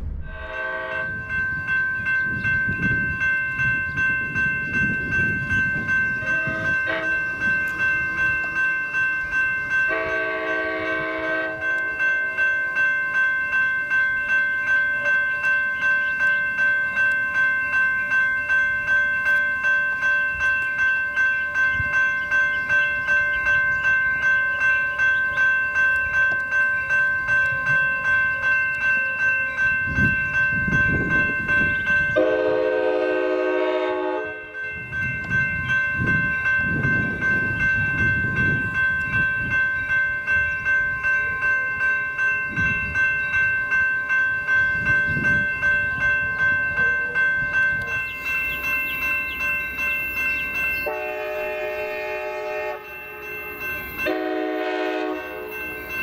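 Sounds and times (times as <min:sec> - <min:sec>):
train horn: 0:00.0 - 0:01.4, 0:06.2 - 0:07.5, 0:09.9 - 0:11.8, 0:32.1 - 0:34.6, 0:50.8 - 0:55.7
railroad warning bell ringing: 0:00.0 - 0:56.0
train rumbling: 0:00.0 - 0:56.0.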